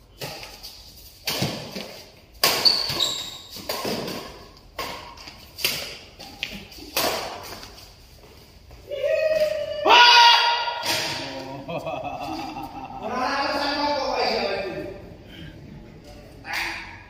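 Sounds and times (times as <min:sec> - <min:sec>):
rackets striking shuttlecock: 0:10.7 - 0:11.4.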